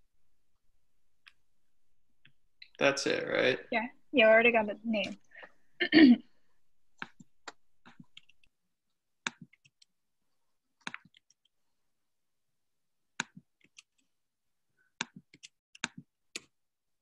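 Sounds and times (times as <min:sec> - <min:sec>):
keyboard and mouse clicks: 0:07.0 - 0:08.5, 0:09.2 - 0:09.9, 0:10.8 - 0:11.5, 0:13.2 - 0:14.1, 0:15.0 - 0:16.6.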